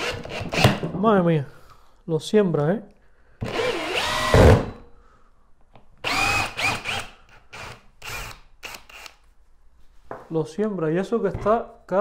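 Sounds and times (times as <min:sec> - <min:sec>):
cordless drill motor whine: 0:03.4 - 0:04.5, 0:06.0 - 0:09.1.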